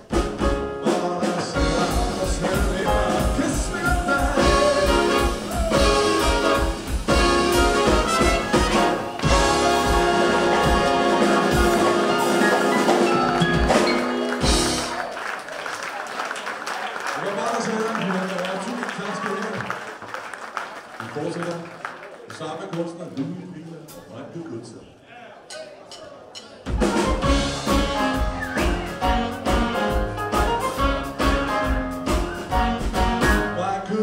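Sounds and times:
drums keeping a steady beat: 0.0s - 15.1s, 25.4s - 33.6s
live jazz band playing: 0.0s - 15.4s, 26.2s - 34.0s
saxophone: 1.6s - 14.9s, 26.8s - 33.6s
trumpet: 1.6s - 15.1s, 26.8s - 33.8s.

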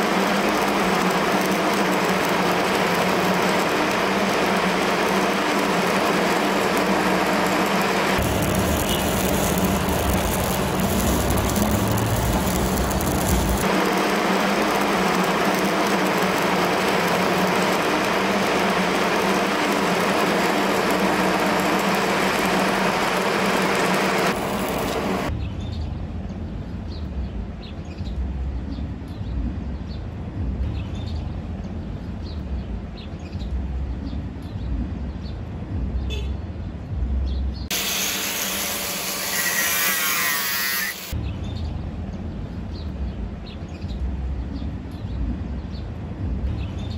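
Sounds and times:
welding arc crackling: 0.0s - 25.3s, 37.7s - 41.2s
low rumble: 6.4s - 16.5s.

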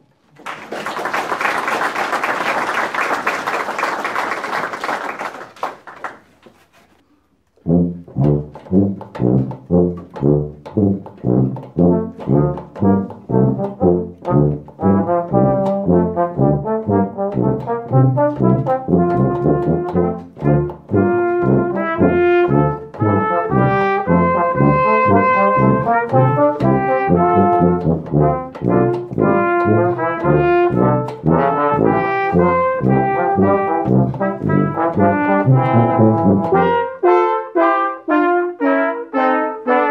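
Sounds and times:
audience applause: 0.3s - 6.4s
brass ensemble playing: 7.6s - 39.9s.

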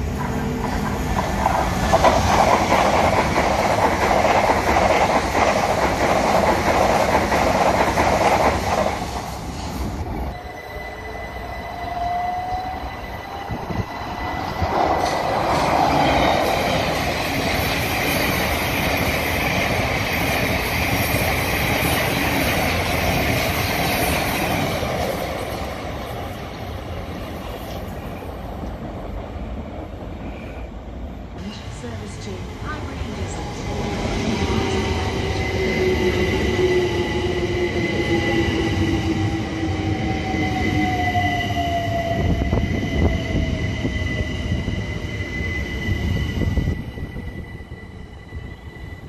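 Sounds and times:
train wheels clattering over rails: 0.3s - 9.8s
faint steady whistle: 10.3s - 13.6s.

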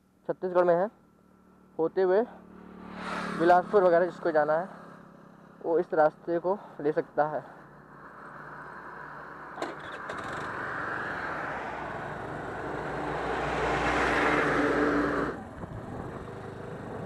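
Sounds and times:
vehicle rushing past: 2.3s - 5.6s, 7.8s - 17.0s.

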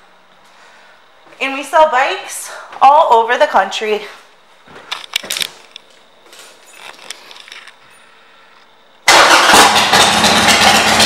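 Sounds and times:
faint clicks and rustles: 4.6s - 8.7s
motorcycle engine running: 9.1s - 11.0s.

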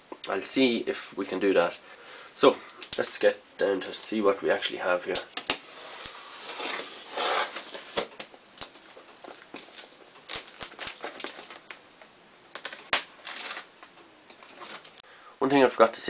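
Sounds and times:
plastic crinkling and tearing: 5.1s - 11.8s, 12.5s - 15.0s.

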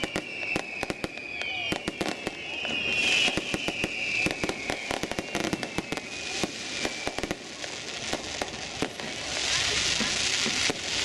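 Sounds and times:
falling firework whistle: 0.0s - 11.0s
fireworks popping and crackling: 0.0s - 11.0s.

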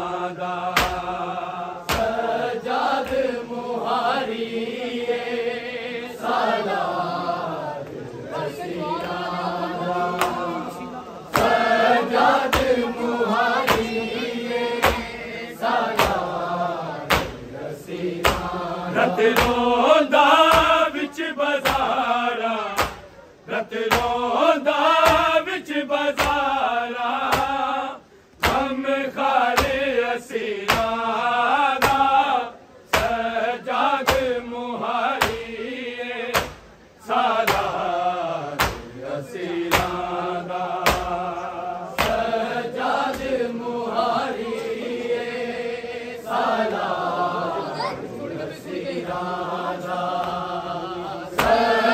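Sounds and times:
men chanting in unison: 0.0s - 51.9s
chest-beating slaps: 0.7s - 1.2s, 1.8s - 2.3s, 10.1s - 10.6s, 11.3s - 11.7s, 12.4s - 13.0s, 13.6s - 14.0s, 14.8s - 15.2s, 15.8s - 16.4s, 17.1s - 17.5s, 18.2s - 18.6s, 19.2s - 19.8s, 20.4s - 20.9s, 21.6s - 22.0s, 22.7s - 23.1s, 23.9s - 24.3s, 25.0s - 25.4s, 26.1s - 26.6s, 27.2s - 27.6s, 28.4s - 28.8s, 29.5s - 29.8s, 30.6s - 31.0s, 31.8s - 32.2s, 32.9s - 33.3s, 34.0s - 34.4s, 35.1s - 35.5s, 36.3s - 36.8s, 37.4s - 37.8s, 38.6s - 39.0s, 39.7s - 40.1s, 40.8s - 41.2s, 41.9s - 42.3s, 51.3s - 51.7s.

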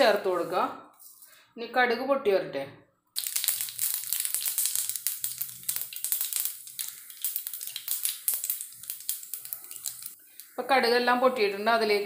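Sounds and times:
seeds popping in hot oil: 3.2s - 12.0s.

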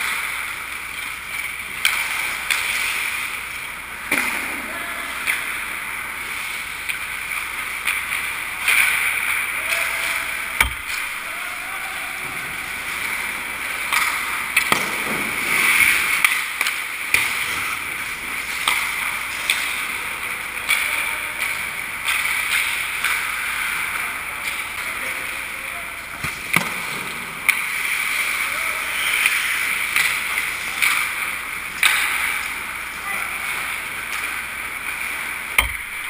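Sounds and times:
hockey sticks and puck clacking: 0.0s - 36.0s
skates scraping on ice: 12.2s - 20.9s.

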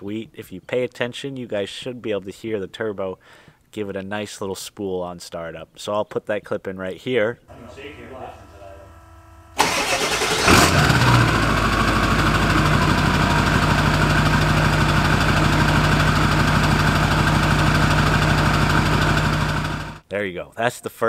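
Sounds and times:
diesel engine starting and idling: 7.6s - 20.0s.

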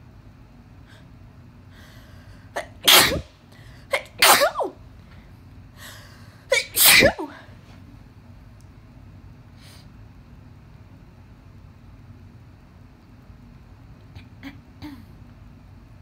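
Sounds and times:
person sneezing: 2.6s - 4.8s, 6.5s - 7.5s.

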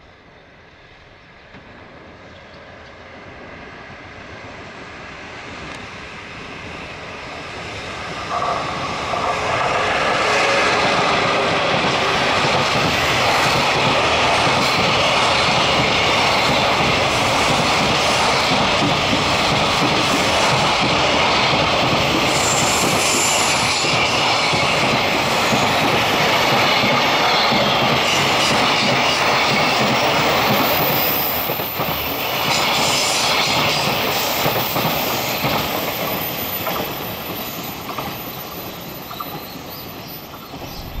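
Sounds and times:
freight train wagons rolling past: 8.0s - 41.0s.

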